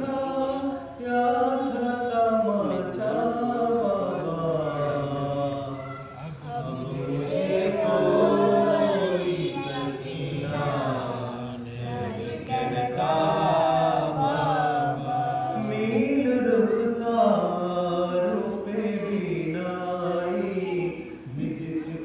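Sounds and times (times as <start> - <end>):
man singing a lament: 0.0 - 5.7, 10.5 - 22.0.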